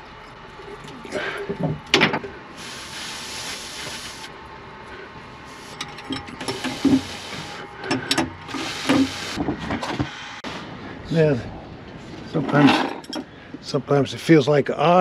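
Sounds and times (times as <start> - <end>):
steady hissing: 2.5 - 4.4, 5.4 - 9.4.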